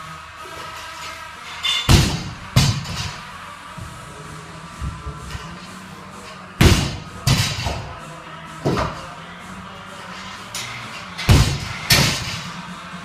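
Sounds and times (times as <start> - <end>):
music: 0.0 - 13.0
barbell dropped on gym floor: 1.6 - 3.2, 6.6 - 8.0, 8.6 - 9.1, 10.1 - 12.6.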